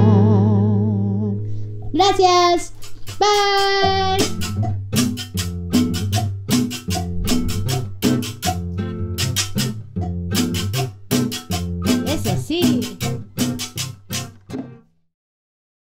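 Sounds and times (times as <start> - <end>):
bass line: 0.0 - 14.0
held melodic notes: 0.0 - 14.8
sharp percussion beat: 2.0 - 14.6.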